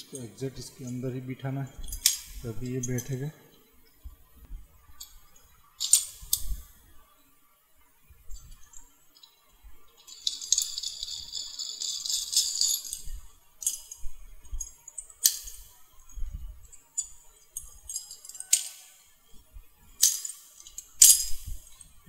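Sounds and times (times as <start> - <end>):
door lock parts rattling: 1.8 - 3.3, 5.8 - 6.6, 9.9 - 15.6, 16.7 - 19.0, 20.0 - 22.0.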